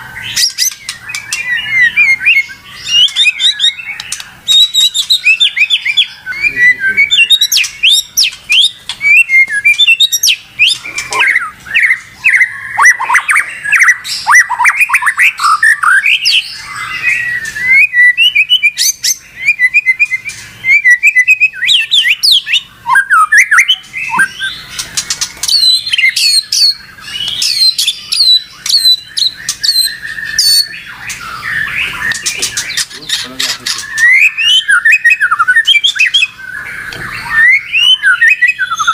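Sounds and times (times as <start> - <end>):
songbird whistles and chirps: 0.0 - 38.9.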